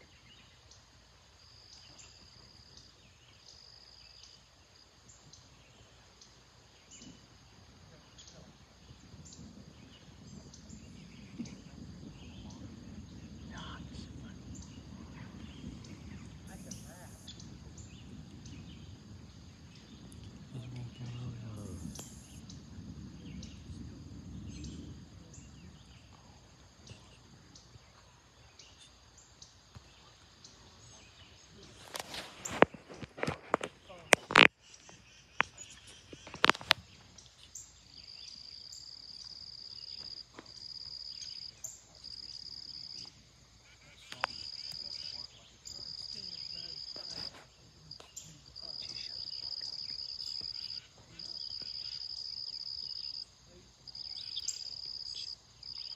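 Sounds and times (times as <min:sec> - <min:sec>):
insects chirring: 0:00.0 - 0:55.9
distant thunder rumbling: 0:05.6 - 0:34.5.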